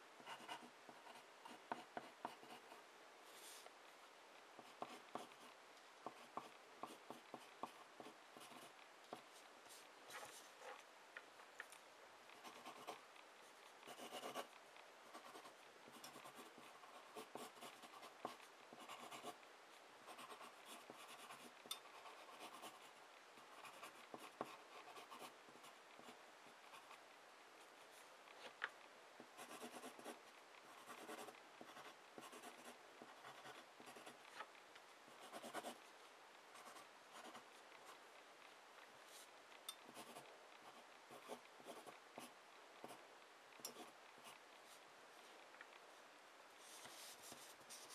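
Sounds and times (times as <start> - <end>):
pencil scratching on paper: 0.2 - 3.6, 4.6 - 9.3, 12.4 - 13.0, 13.9 - 14.5, 15.1 - 19.4, 20.1 - 25.3, 29.4 - 34.2, 35.2 - 35.8.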